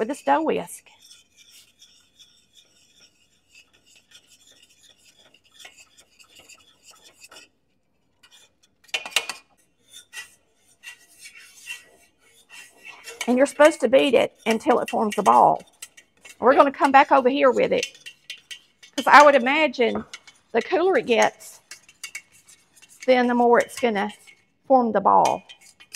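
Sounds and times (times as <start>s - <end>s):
whisk scraping in dough: 0.0s - 25.9s
wire whisk knocking on pan: 16.4s - 21.4s.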